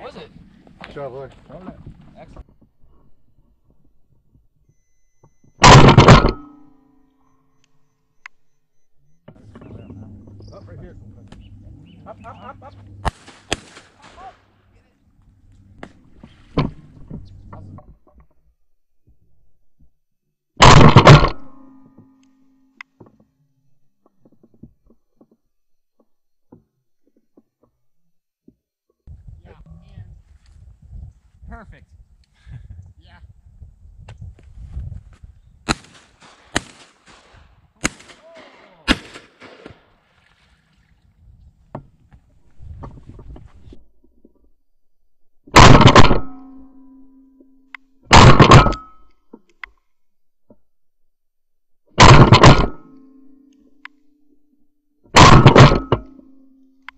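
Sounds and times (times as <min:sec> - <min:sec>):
low ringing hum: 0:04.7 - 0:13.2, 0:20.6 - 0:22.8, 0:45.5 - 0:49.4, 0:52.1 - 0:56.9
shotgun firing: 0:05.6 - 0:06.6, 0:13.0 - 0:14.4, 0:20.6 - 0:21.6, 0:35.7 - 0:40.0, 0:45.6 - 0:46.4, 0:48.1 - 0:48.8, 0:52.0 - 0:52.9
faint gunshot crack: 0:13.0 - 0:14.4, 0:35.7 - 0:40.0.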